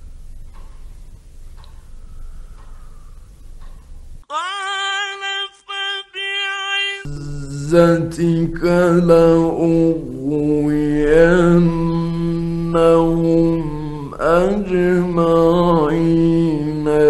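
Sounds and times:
recording hum: 0.0s - 5.2s, 7.0s - 17.0s
man chanting: 4.3s - 17.0s
high sung note: 7.0s - 14.2s.

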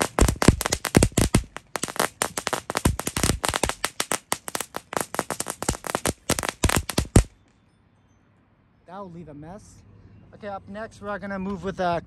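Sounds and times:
firecrackers popping: 0.0s - 7.5s.

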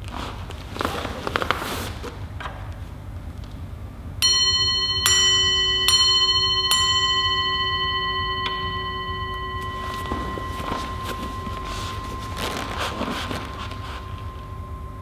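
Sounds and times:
metal bowl bell ringing: 4.2s - 15.0s.

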